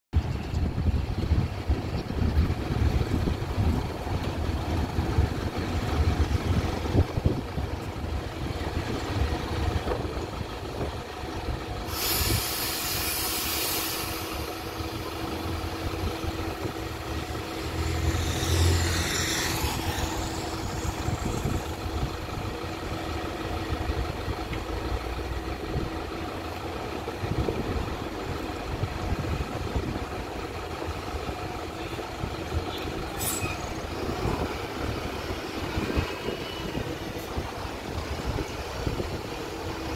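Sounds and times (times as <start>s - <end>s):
street traffic: 0.1s - 39.9s
heavy vehicle engine idling: 0.2s - 39.9s
sharp hiss: 11.8s - 15.0s
vehicle passing: 16.7s - 22.2s.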